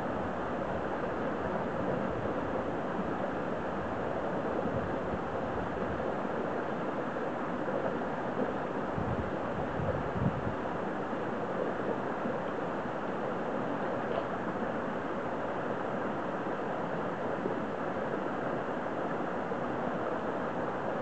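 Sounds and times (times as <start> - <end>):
stream water rushing: 0.0 - 21.0.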